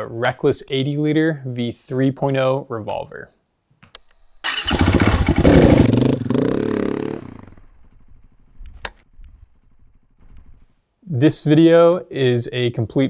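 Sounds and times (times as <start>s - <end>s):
motorcycle engine revving and idling: 4.5s - 10.6s.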